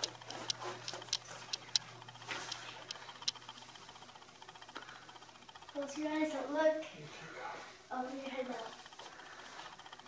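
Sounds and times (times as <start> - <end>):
light clicks and taps: 0.0 - 3.6.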